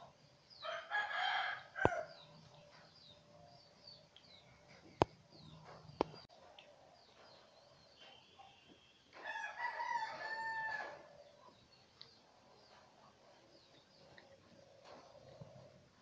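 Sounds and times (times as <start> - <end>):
rooster crowing: 0.6 - 2.1, 9.2 - 11.1
faint bird chirps: 7.0 - 9.1.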